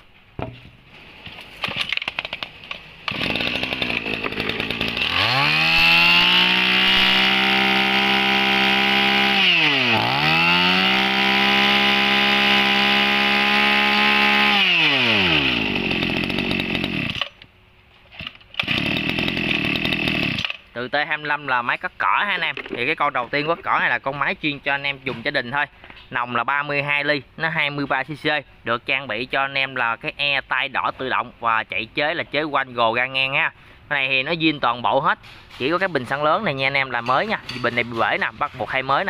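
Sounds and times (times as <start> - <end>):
brush cutter engine revving: 1.5 - 17.4, 18.2 - 20.6.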